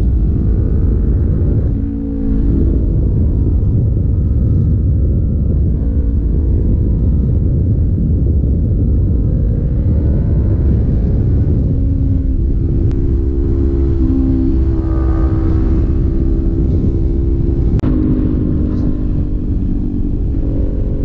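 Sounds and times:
motorcycle engine running: 0.0s - 21.0s
wind rushing over microphone: 0.0s - 21.0s.

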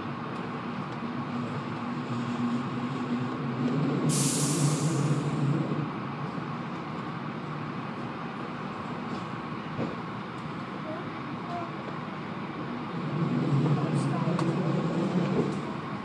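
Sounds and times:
train wheels rumbling on track: 0.0s - 16.0s
sharp hiss: 4.1s - 5.2s.

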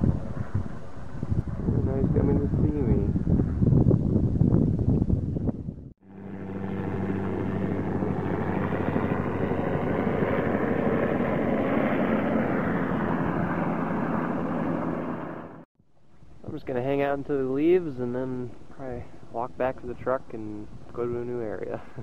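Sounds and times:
helicopter flying low: 5.7s - 15.7s.

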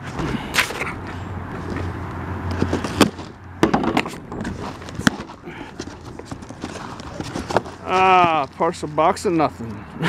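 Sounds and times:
cardboard and plastic rustling: 1.5s - 9.2s.

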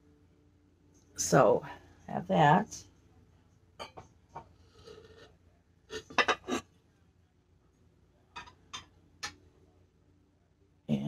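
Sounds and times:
ceramic and glass clinking: 3.8s - 4.1s, 5.9s - 6.6s, 8.4s - 9.4s.

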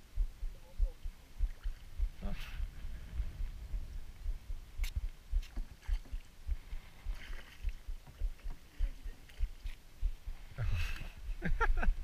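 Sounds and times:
water slapping against boat hull: 4.8s - 9.8s.

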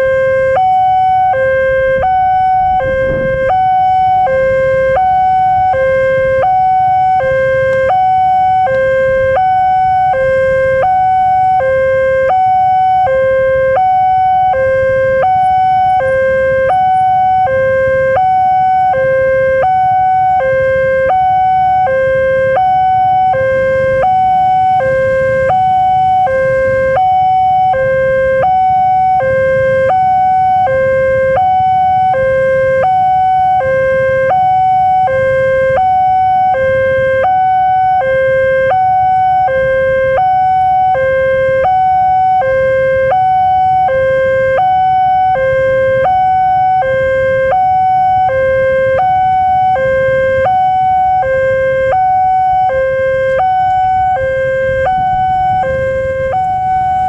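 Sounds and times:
two-tone level crossing alarm: 0.0s - 57.0s.

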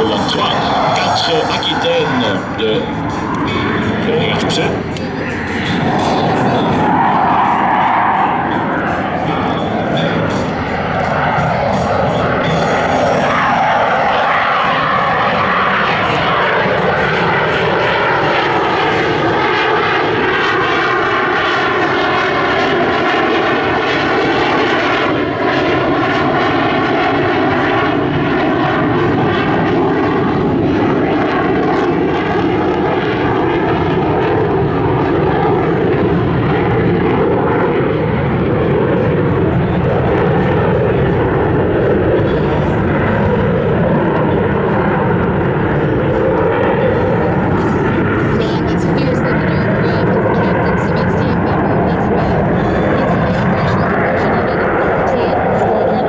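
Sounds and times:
jet engines roaring: 0.0s - 56.0s.

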